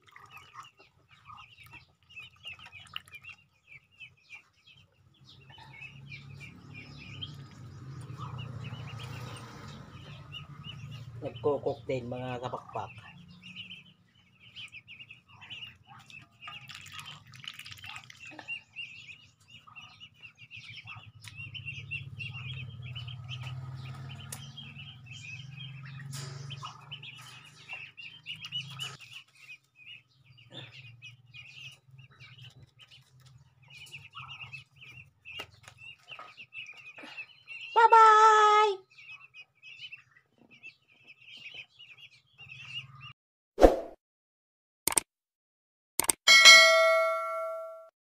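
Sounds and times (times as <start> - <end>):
birds chirping: 0.0 - 43.2, 46.3 - 47.8.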